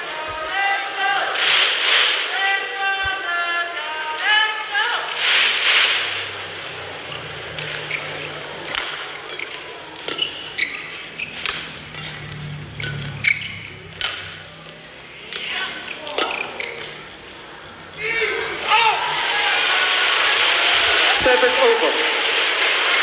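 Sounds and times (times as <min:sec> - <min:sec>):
shoes squeaking on court: 0:06.2 - 0:17.3
rackets striking shuttlecock: 0:07.5 - 0:17.1.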